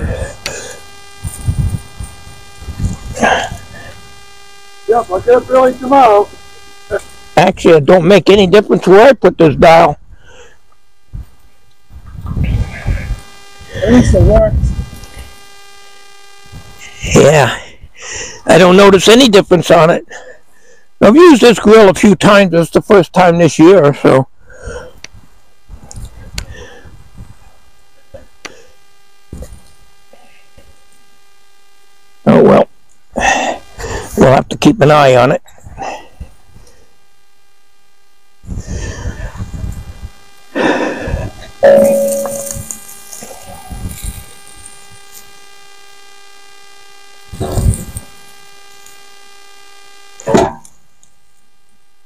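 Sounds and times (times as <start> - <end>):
electrical hum: 0.0 - 52.0.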